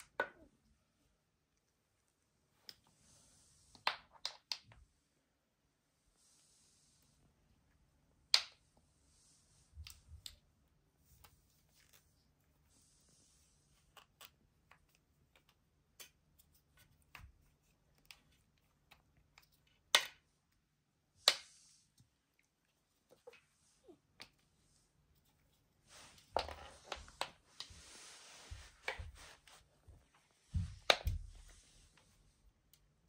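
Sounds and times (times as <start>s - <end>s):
soft rustles: 21.4s - 32.6s.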